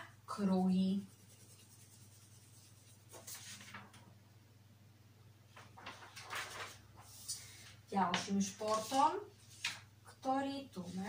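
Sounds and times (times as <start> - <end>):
pencil scratching on paper: 0.9 - 3.6
paper rustling: 2.3 - 4.1, 5.5 - 9.9.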